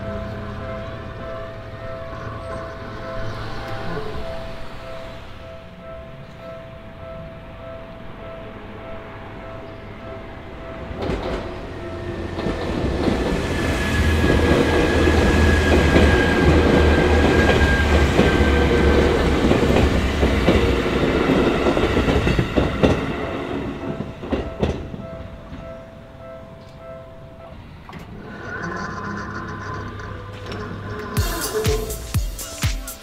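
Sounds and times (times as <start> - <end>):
crossing warning bell ringing: 0.0 - 32.6
train wheels rumbling on rail: 10.7 - 25.7
clickety-clack over rail joints: 10.8 - 25.7.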